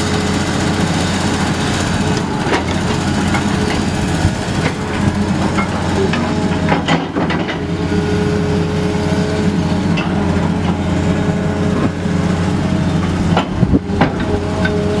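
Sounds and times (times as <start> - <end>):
excavator diesel engine humming: 0.0 - 15.0
sharp knocks: 13.3 - 14.3.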